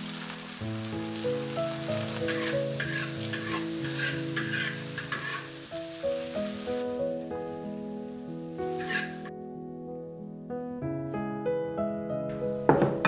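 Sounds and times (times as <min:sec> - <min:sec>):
food sizzling: 0:00.0 - 0:09.3
background music: 0:00.0 - 0:13.0
spatula scraping a wok: 0:01.9 - 0:06.8, 0:08.6 - 0:09.3.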